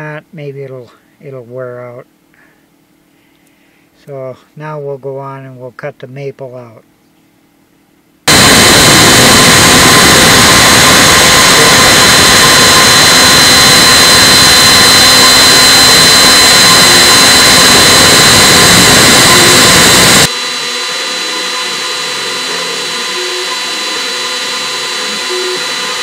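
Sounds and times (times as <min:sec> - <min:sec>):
spindle high whine: 0:08.2 - 0:26.0
router cutting hiss: 0:08.3 - 0:26.0.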